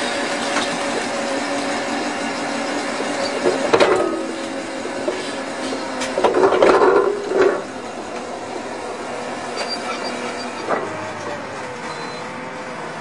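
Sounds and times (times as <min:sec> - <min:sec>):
pipe-laying machine running: 0:00.0 - 0:13.0
metallic clanking and scraping: 0:02.9 - 0:11.4.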